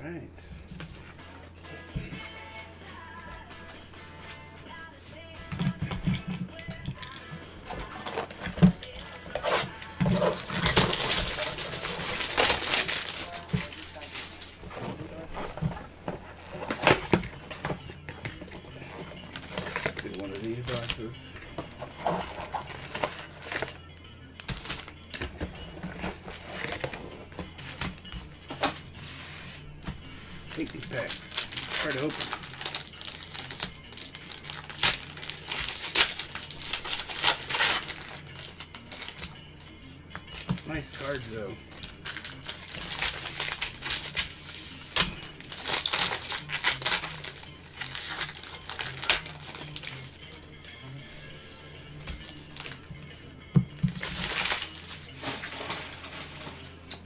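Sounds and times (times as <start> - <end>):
background music: 0.0 - 57.0
foil packs crinkling and tearing: 7.0 - 17.7, 18.9 - 21.2, 22.0 - 23.8, 24.4 - 28.8, 30.3 - 39.4, 40.3 - 50.2, 52.0 - 53.1, 53.8 - 56.9.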